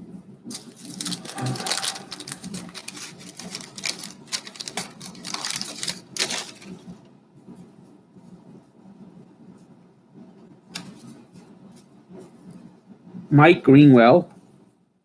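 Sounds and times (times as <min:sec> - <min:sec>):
paper wrapper tearing and crinkling: 0:00.5 - 0:06.9.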